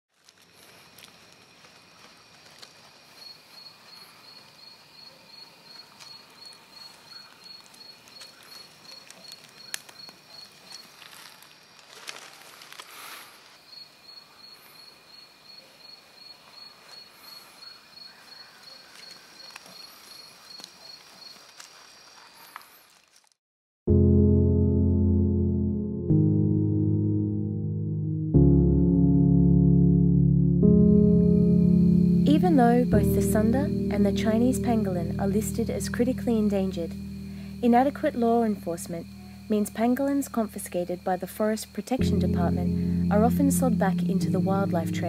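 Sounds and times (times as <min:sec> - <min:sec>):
faint ticks and rustles: 0:00.2 - 0:14.9, 0:15.7 - 0:23.4
insect chirping: 0:00.4 - 0:23.1, 0:31.1 - 0:45.0
high insect trilling: 0:32.0 - 0:45.0.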